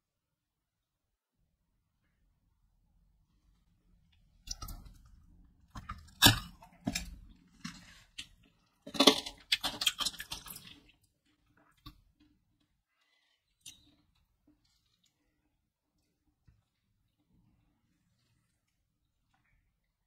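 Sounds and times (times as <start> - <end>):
hard candy cracking and crunching: 5.7 - 15.5.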